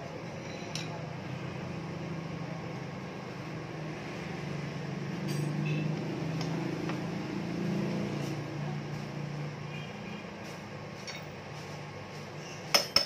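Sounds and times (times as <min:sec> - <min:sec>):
hand tools clinking on metal: 0:05.2 - 0:05.8, 0:12.7 - 0:13.0.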